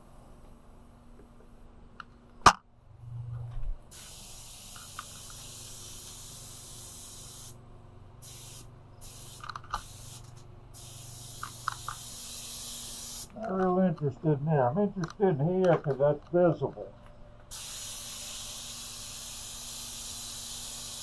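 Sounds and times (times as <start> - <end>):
low steady hum: 0.0 - 17.5
paint spray gun hissing: 3.9 - 7.6, 8.2 - 13.4, 17.5 - 21.0.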